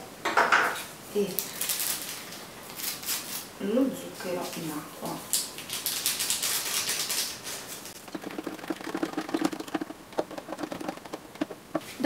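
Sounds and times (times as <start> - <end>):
sugar pouring into water: 8.0 - 10.8
spoon stirring in plastic jug: 8.0 - 12.0.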